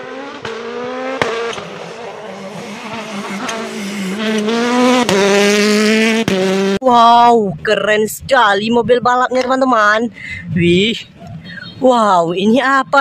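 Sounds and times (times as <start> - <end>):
rally car engine running hard: 0.0 - 6.8.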